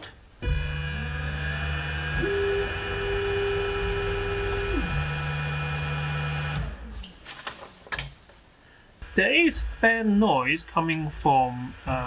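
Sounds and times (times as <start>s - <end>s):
stepper motors humming: 0.0s - 7.1s, 9.0s - 12.0s.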